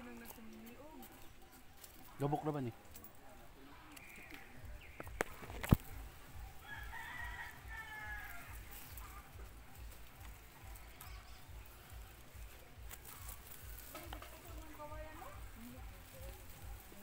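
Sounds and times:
rooster crowing: 0:06.6 - 0:08.7.

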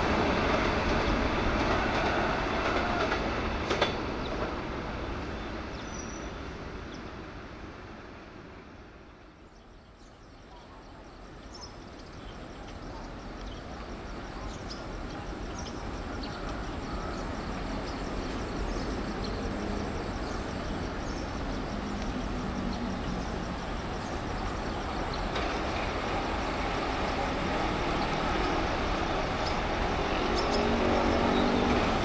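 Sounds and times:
diesel locomotive engine drone: 0:00.0 - 0:32.0
rail noise: 0:00.0 - 0:32.0.

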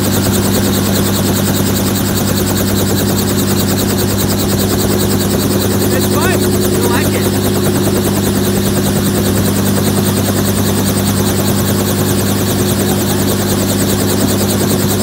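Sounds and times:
helicopter engine hum: 0:00.0 - 0:15.0
rotor beating: 0:03.6 - 0:12.8.

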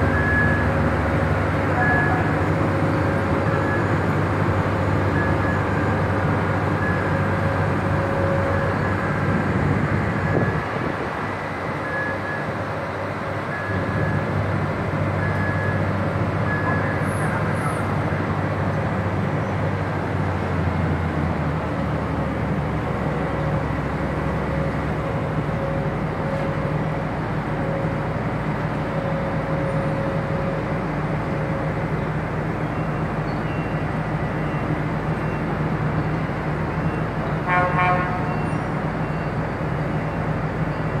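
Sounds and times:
short horn toot: 0:37.5 - 0:38.4.

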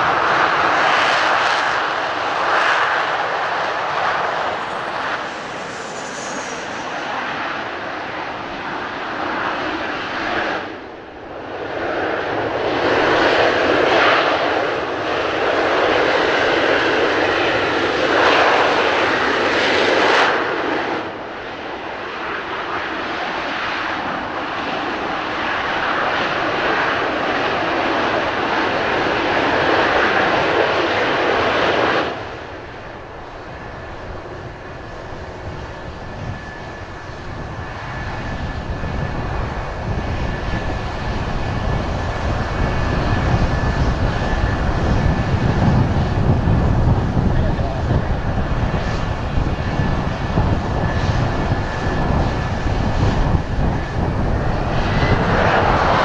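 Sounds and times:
steady high whine: 0:00.0 - 0:09.6
jet engines roaring: 0:00.0 - 0:56.0.

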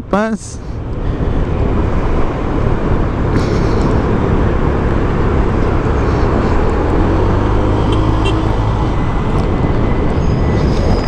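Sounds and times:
wind and road noise: 0:00.0 - 0:11.0.

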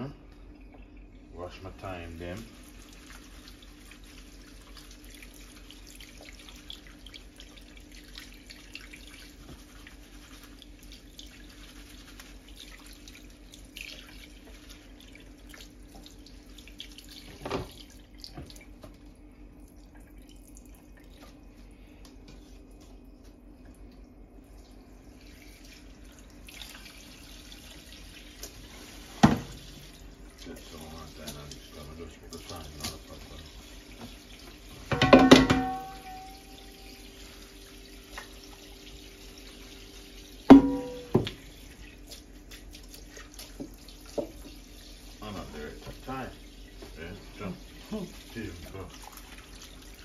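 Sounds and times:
tap running into a metal sink: 0:17.3 - 0:19.0, 0:29.2 - 0:29.6, 0:32.3 - 0:33.1, 0:34.8 - 0:36.4, 0:40.5 - 0:41.4, 0:43.5 - 0:44.6.

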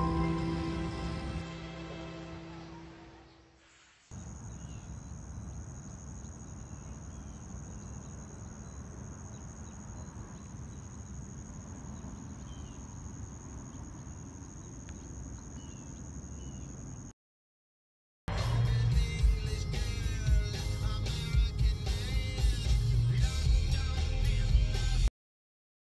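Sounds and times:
low rumble: 0:00.0 - 0:03.0, 0:18.3 - 0:20.3.

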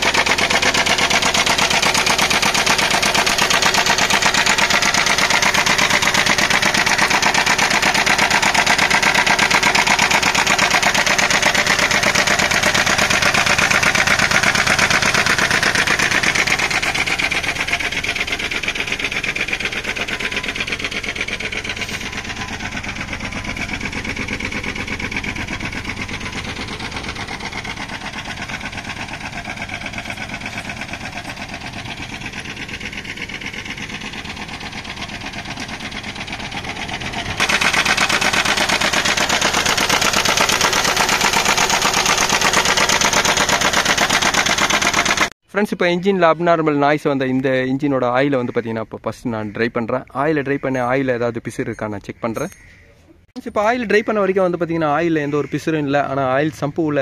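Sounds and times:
engine idling with rapid knock: 0:00.0 - 0:45.4.

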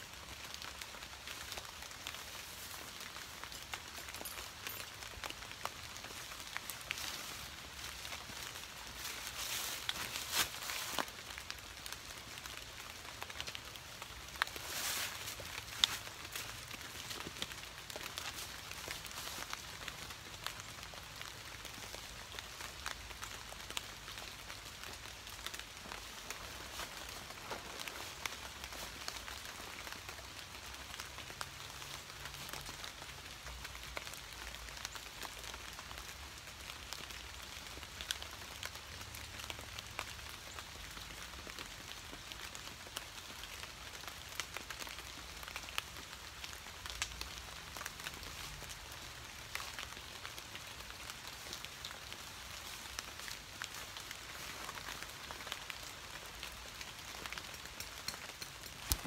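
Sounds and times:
light rain falling: 0:00.0 - 0:59.0
raindrops ticking: 0:15.2 - 0:59.0.

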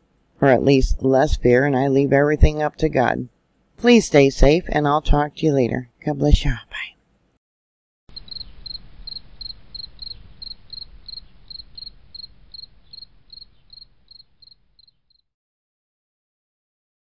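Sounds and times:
cricket chirping: 0:08.1 - 0:15.2.

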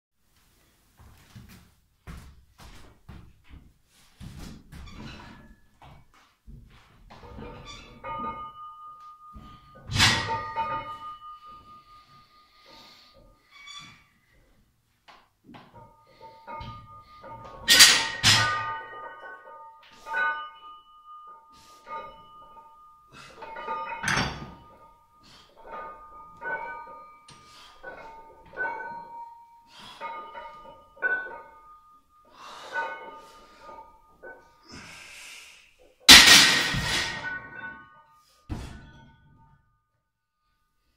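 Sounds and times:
weight plates clanking: 0:07.1 - 0:14.1, 0:15.5 - 0:34.9, 0:36.1 - 0:37.9
barbell clanging into rack hooks: 0:07.2 - 0:11.9, 0:15.6 - 0:34.5, 0:36.1 - 0:37.9.

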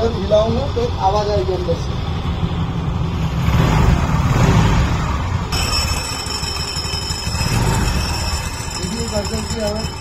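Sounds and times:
scooter engine idling: 0:00.0 - 0:10.0
high metallic ringing: 0:05.5 - 0:10.0.

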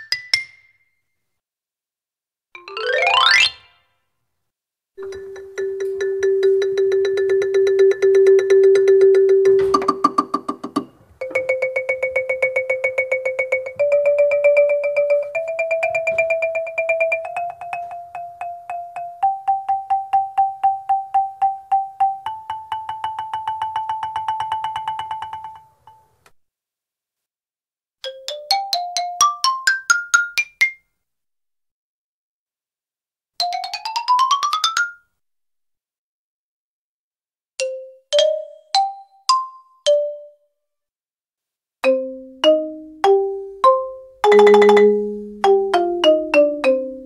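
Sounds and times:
xylophone rolls: 0:02.6 - 0:03.7, 0:05.0 - 0:26.1, 0:41.8 - 0:47.0.

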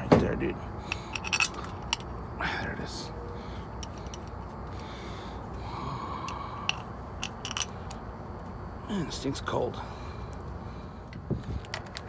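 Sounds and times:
steady low hum: 0:00.0 - 0:12.0
metal cap scraping: 0:06.7 - 0:08.0.

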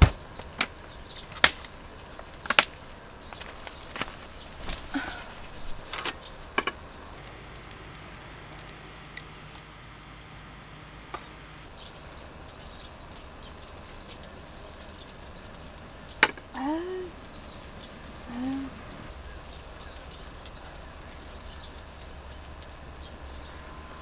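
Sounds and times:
faint outdoor background: 0:00.0 - 0:24.0.

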